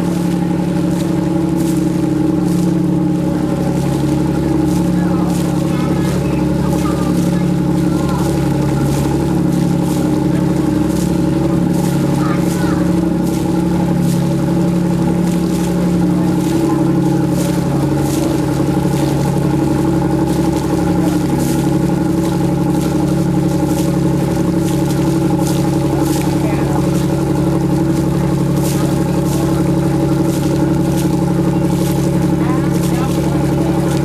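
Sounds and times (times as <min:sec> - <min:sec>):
boat engine droning: 0:00.0 - 0:34.0.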